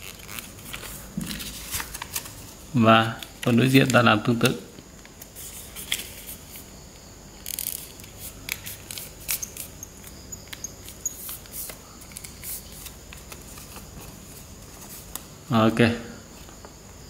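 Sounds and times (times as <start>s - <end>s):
paper rustling and crinkling: 0.0s - 4.5s, 5.2s - 6.7s, 10.8s - 15.3s.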